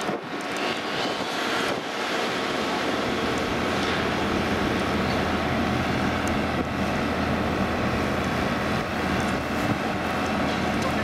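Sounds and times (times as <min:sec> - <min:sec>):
crane mechanical rumble and hiss: 0:00.0 - 0:11.0.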